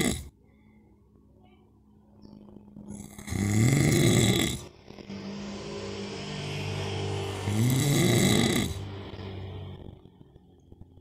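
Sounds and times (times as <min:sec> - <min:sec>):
soft breathing: 0:00.3 - 0:01.3
man snoring loudly: 0:03.0 - 0:09.7.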